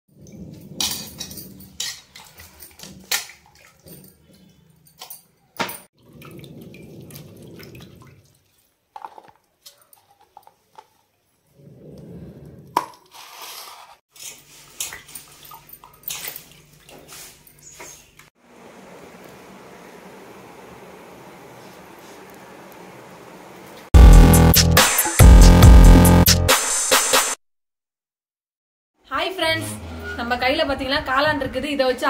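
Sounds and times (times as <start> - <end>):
steel utensils clinking: 0.6 - 5.9
water splashing and dripping: 2.0 - 4.4, 6.0 - 9.7, 14.2 - 17.5.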